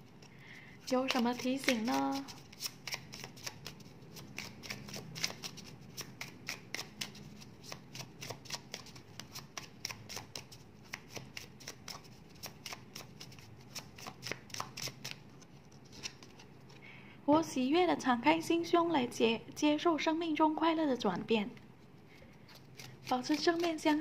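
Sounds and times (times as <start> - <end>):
cards being shuffled: 0.1 - 16.8, 22.1 - 24.0.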